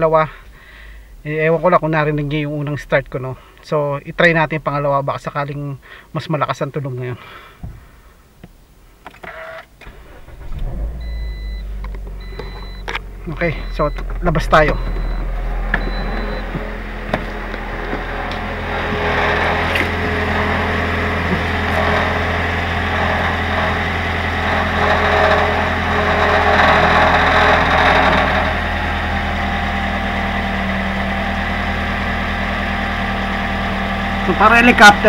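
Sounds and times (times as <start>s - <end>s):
car engine idling: 0.0s - 4.7s, 9.7s - 35.0s
buzzing rattle under car: 9.7s - 35.0s.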